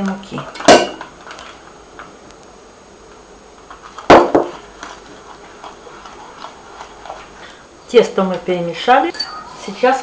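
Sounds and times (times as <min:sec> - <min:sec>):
kitchenware knocks: 0:04.1 - 0:04.5.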